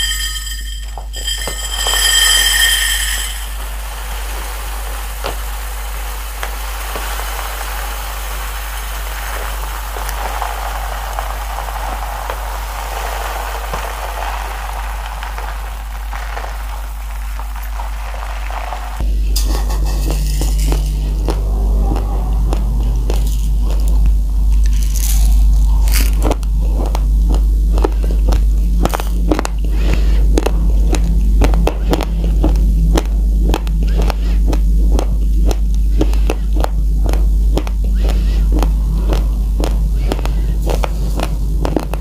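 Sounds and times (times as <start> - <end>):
rice grains pouring into glass bowl: 0.0 - 19.0
low hum: 0.0 - 42.0
crunching of rice being chewed: 20.0 - 42.0.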